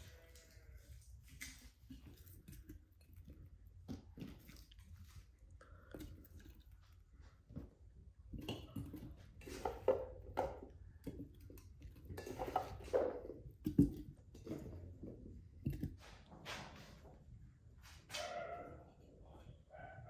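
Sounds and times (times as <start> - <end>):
dishes and utensils clinking: 11.2 - 14.8.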